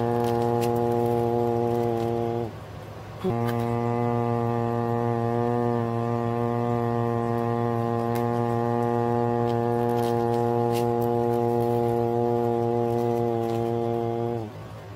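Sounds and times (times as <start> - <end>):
pepper crushing crackles: 0.0 - 2.5, 7.3 - 14.4.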